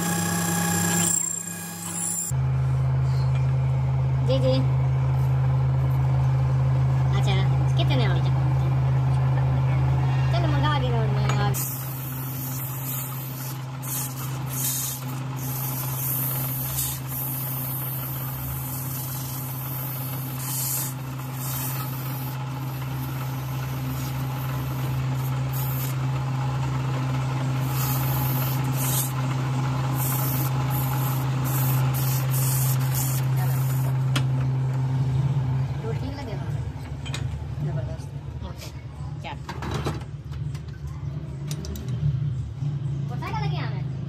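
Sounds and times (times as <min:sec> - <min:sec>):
steady machine hum: 0:00.0 - 0:37.6
short hissing bursts: 0:11.6 - 0:22.4.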